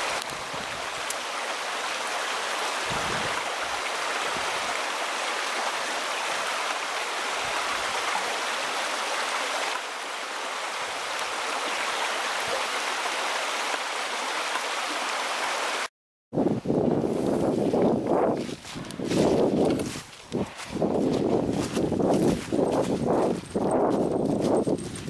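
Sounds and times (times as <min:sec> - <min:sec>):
stream running over rocks: 0:00.0 - 0:15.9.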